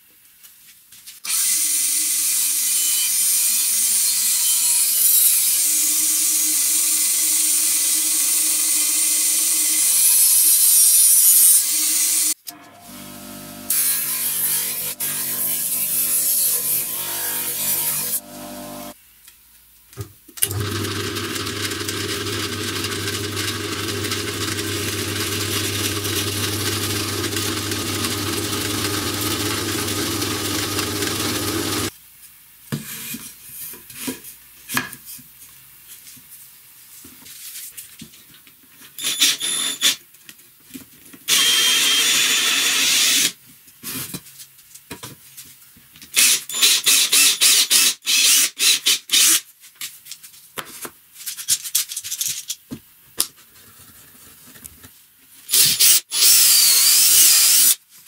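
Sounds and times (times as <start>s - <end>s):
power tool running: 11.6s - 19.0s, 20.4s - 31.9s, 41.3s - 43.3s, 55.5s - 57.8s
cordless drill boring into wood: 20.4s - 31.9s, 39.0s - 40.0s, 41.3s - 43.3s, 46.2s - 49.4s, 55.5s - 57.8s
drill press motor hum: 20.4s - 31.9s.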